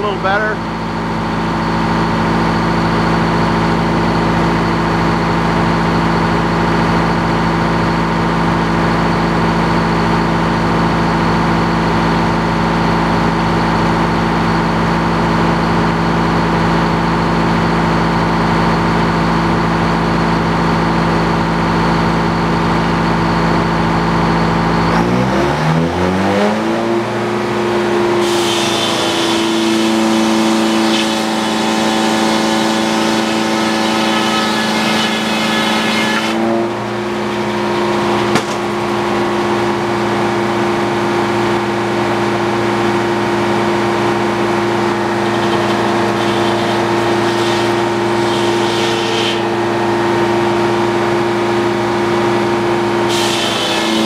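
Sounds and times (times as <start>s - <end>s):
sawmill engine under load: 0.0s - 54.0s
saw blade cutting log: 28.2s - 37.5s, 44.8s - 49.7s, 53.0s - 54.0s.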